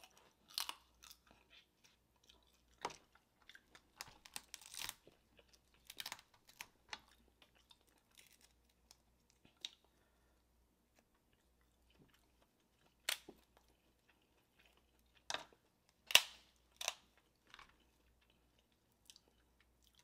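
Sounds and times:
crab shell cracking: 0:04.0 - 0:05.0.

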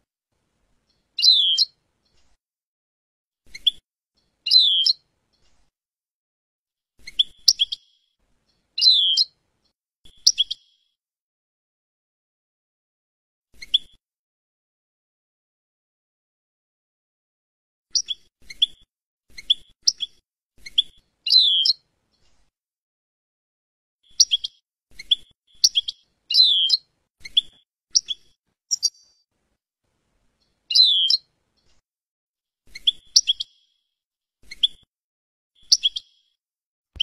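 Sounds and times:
finch chirping: 0:00.9 - 0:02.2, 0:04.5 - 0:05.0, 0:07.0 - 0:07.9, 0:08.5 - 0:09.4, 0:18.0 - 0:18.8, 0:19.4 - 0:21.8, 0:24.1 - 0:29.2, 0:30.4 - 0:31.3, 0:32.7 - 0:33.7, 0:35.6 - 0:36.3.

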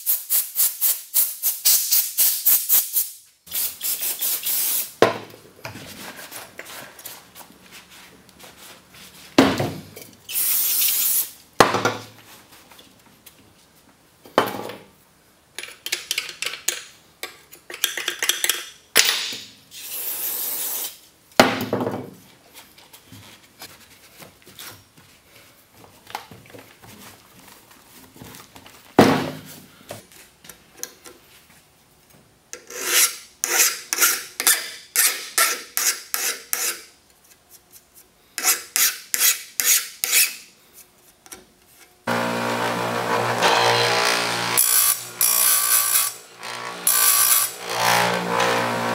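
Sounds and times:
bench grinder running: 0:42.1 - 0:48.9.

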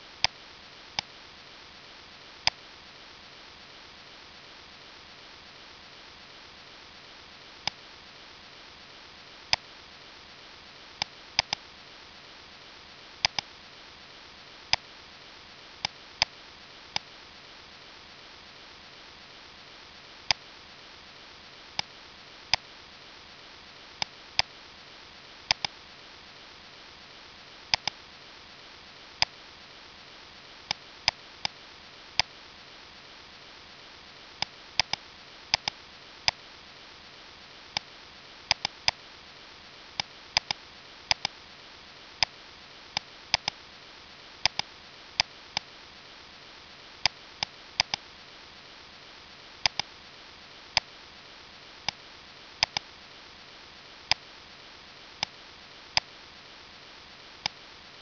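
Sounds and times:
faint steady hiss: 0:00.0 - 0:58.0
computer mouse buttons clicking: 0:11.0 - 0:11.6, 0:13.2 - 0:13.5, 0:25.5 - 0:25.7, 0:27.7 - 0:28.0, 0:34.4 - 0:36.4, 0:38.5 - 0:39.0, 0:40.0 - 0:41.3, 0:43.0 - 0:43.6, 0:44.4 - 0:44.7, 0:47.0 - 0:48.0, 0:49.6 - 0:49.9, 0:52.6 - 0:52.8.

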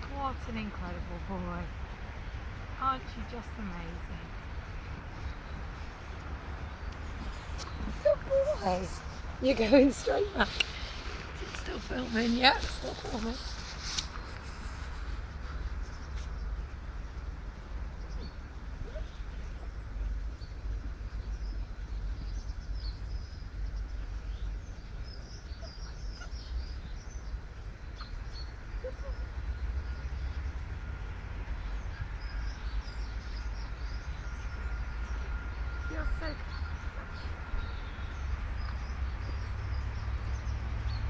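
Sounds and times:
small birds chirping: 0:00.0 - 0:41.0.

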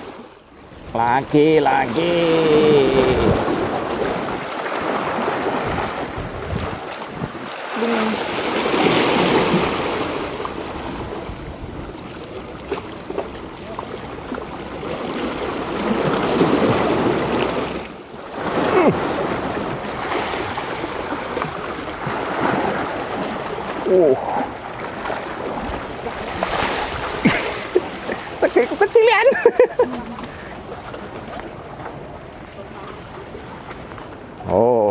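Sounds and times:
sea waves washing against rocks: 0:00.0 - 0:33.0
wind buffeting the microphone: 0:02.8 - 0:07.6, 0:08.6 - 0:12.2.

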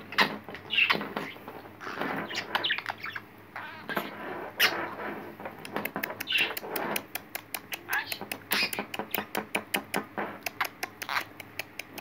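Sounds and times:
budgerigar chirping and squawking: 0:00.1 - 0:05.0, 0:06.0 - 0:07.0, 0:07.7 - 0:10.0, 0:10.6 - 0:11.6
sharp clicks: 0:05.6 - 0:12.0.

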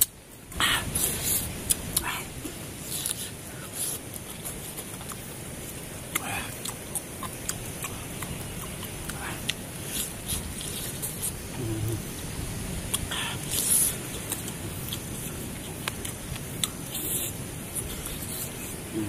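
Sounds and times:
mouth clicks and lip smacks: 0:00.0 - 0:05.3, 0:06.1 - 0:12.0, 0:12.9 - 0:18.8
steady high hiss: 0:00.0 - 0:19.0
sucking sounds: 0:06.1 - 0:12.3, 0:12.9 - 0:19.0.

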